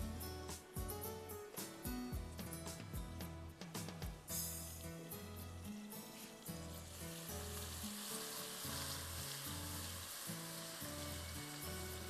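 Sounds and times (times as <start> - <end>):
background music with bass: 0.0 - 7.8
sauce sizzling in a wok: 3.8 - 12.0.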